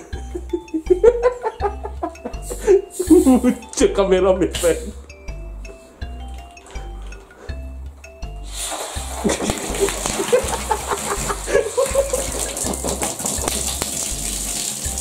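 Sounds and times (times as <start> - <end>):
fizzing hiss of foam: 8.4 - 15.0.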